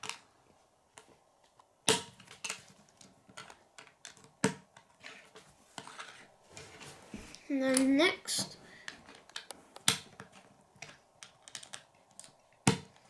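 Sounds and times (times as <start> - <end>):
plastic bricks clicking: 9.0 - 13.0.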